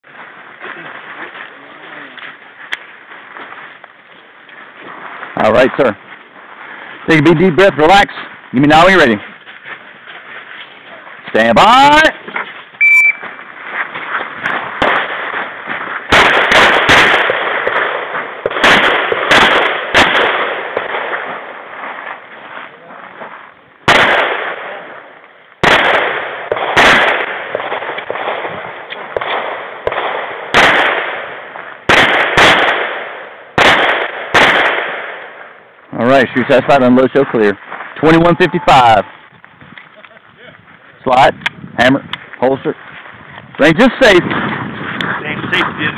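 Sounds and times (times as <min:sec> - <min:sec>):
shot timer beep: 0:12.8 - 0:13.2
pistol shots with ringing echo: 0:16.1 - 0:21.6, 0:23.8 - 0:35.6.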